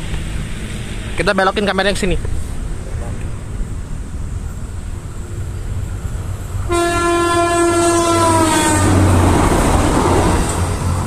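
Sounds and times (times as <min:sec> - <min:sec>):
train rumbling past: 0:00.0 - 0:11.0
train horn blast: 0:06.6 - 0:09.2.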